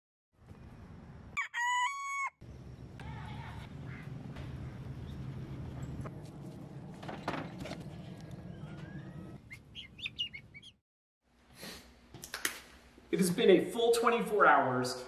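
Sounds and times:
guinea fowl chirping: 9.4s - 10.8s.

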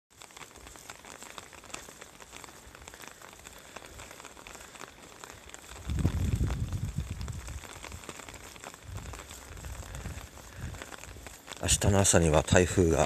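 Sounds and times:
raindrop ticks: 0.1s - 13.0s
steady rain falling: 0.1s - 13.0s
wind gust on microphone: 5.8s - 7.9s, 8.8s - 10.8s.

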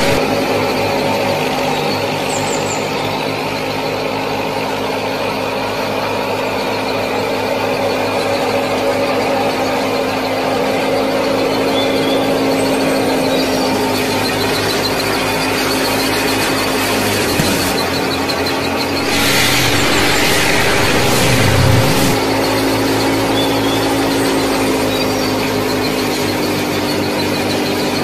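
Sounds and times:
motor humming steadily: 0.0s - 17.5s, 18.7s - 22.2s.

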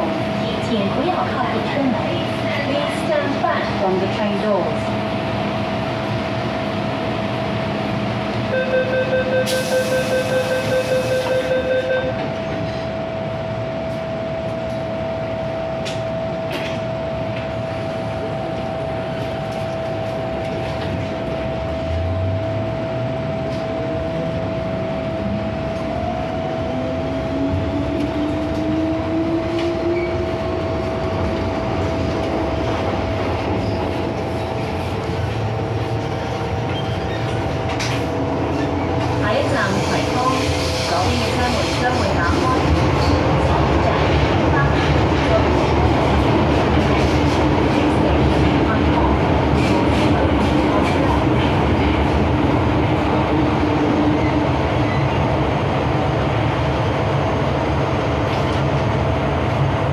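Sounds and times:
train running noise: 0.0s - 59.9s
door-closing warning beep: 8.6s - 12.2s
train doors hissing shut: 9.4s - 11.5s.

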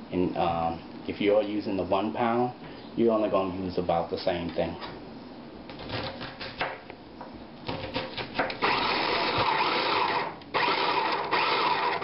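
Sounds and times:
food processor whirring: 8.5s - 12.0s.

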